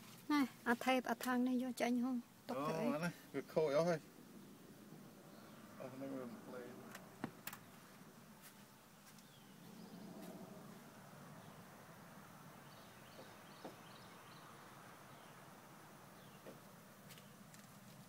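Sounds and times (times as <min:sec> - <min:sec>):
faint high bird chirps: 0:12.6 - 0:15.4.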